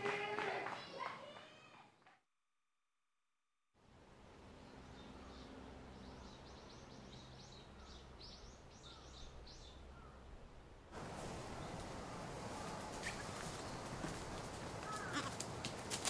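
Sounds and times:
faint outdoor background: 0.0s - 16.0s
bird chirping: 4.5s - 10.4s, 11.4s - 15.2s.

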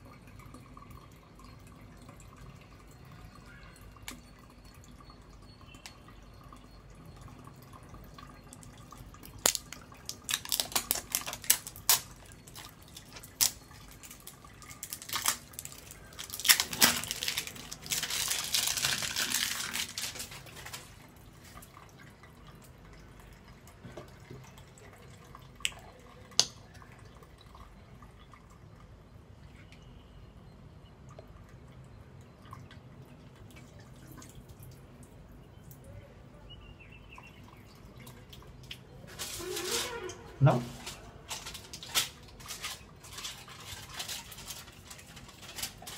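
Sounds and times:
water dripping on tiles: 3.7s - 27.6s, 31.1s - 36.0s, 37.2s - 39.0s.

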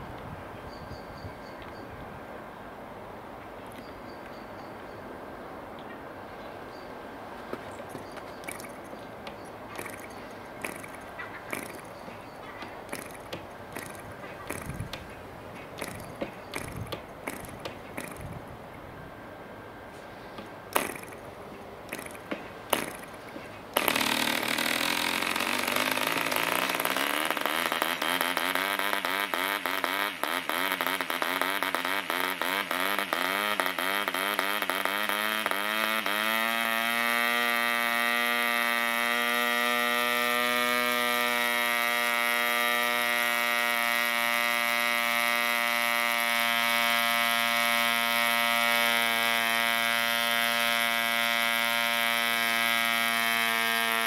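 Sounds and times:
model diesel engine popping and running: 8.0s - 18.4s, 20.4s - 48.4s.

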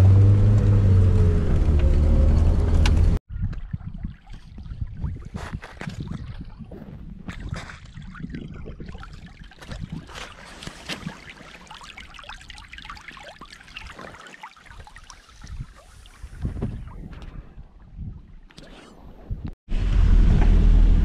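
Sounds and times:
wind buffeting microphone: 2.8s - 10.2s, 15.4s - 18.5s
water flowing and trickling: 3.3s - 18.5s.

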